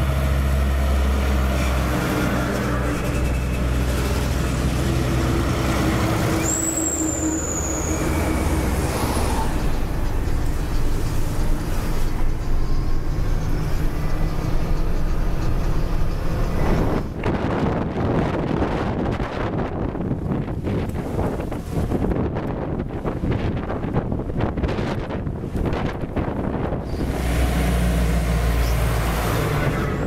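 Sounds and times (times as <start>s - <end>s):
diesel trucks engine drone: 0.0s - 30.0s
high whistle: 6.3s - 8.6s.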